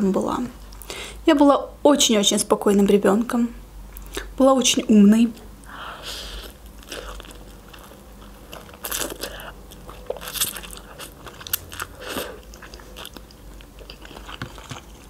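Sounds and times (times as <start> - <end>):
chewing noodles with wet clicks: 6.8 - 15.0.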